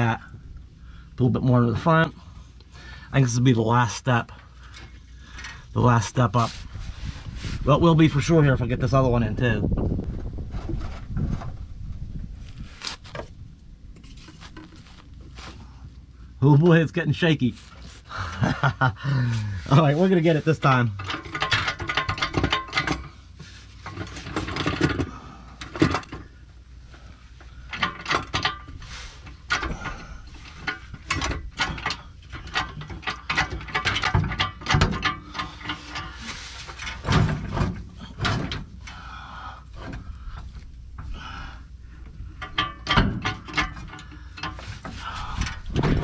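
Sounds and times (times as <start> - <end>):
transmission clunking on jack: 19.7 - 26.4, 27.4 - 39.1, 42.1 - 46.0.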